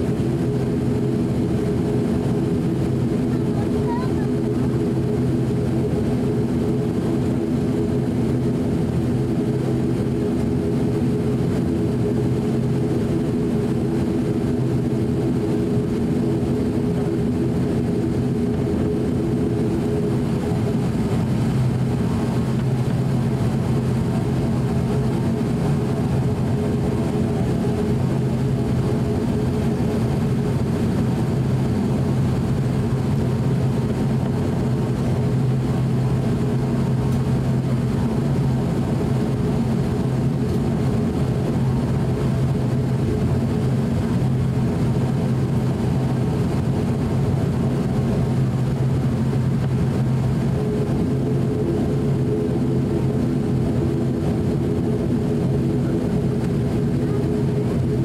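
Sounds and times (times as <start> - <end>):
turboprop engines droning: 0.0 - 58.0.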